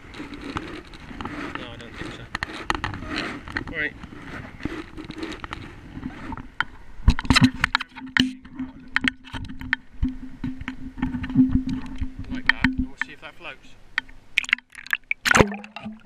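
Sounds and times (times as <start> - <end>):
camera knocking against kayak: 6.3 - 13.2.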